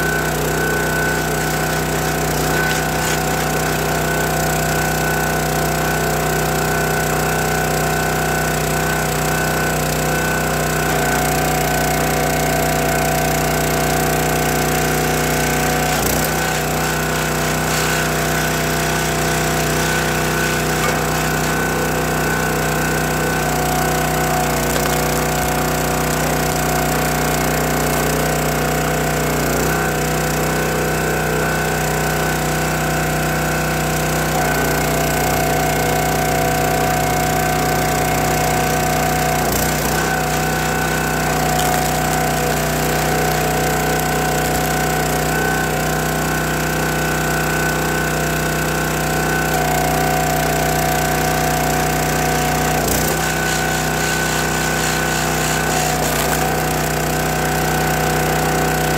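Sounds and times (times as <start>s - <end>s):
small gas engine running: 0.0s - 58.9s.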